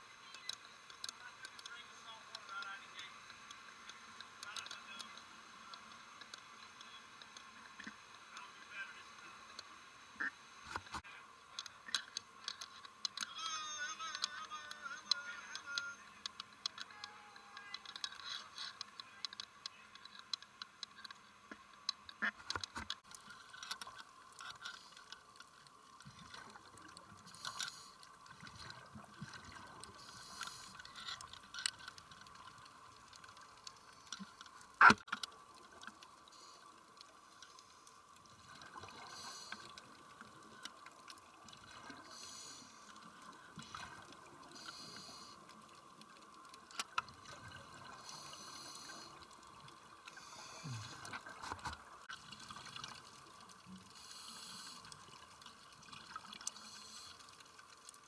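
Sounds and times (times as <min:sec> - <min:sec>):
clicks and crackles: 0:00.2 - 0:08.4, 0:10.6 - 0:58.0
bubbling water: 0:25.6 - 0:37.2, 0:45.4 - 0:54.0, 0:54.8 - 0:58.0.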